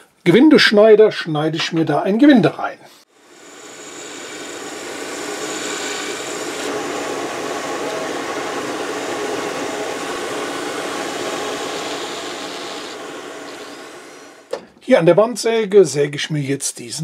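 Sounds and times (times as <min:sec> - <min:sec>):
dust extraction hose running: 0:03.2 - 0:14.6
drill press running: 0:03.2 - 0:14.7.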